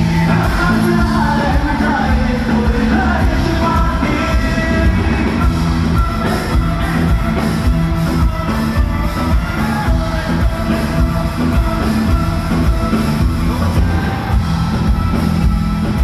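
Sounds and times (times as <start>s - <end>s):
live band with singer: 0.0s - 16.0s.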